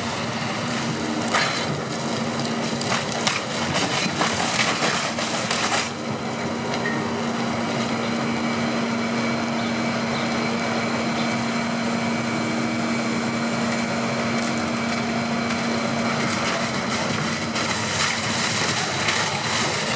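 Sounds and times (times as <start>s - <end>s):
material handler engine and hydraulics: 0.0s - 19.9s
wood shredder running: 0.0s - 19.9s.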